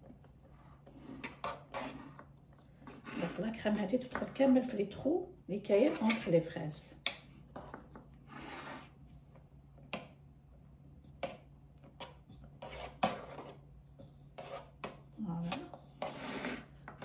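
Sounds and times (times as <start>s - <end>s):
spatula scraping cream in pan: 0.8s - 2.3s, 12.0s - 17.0s.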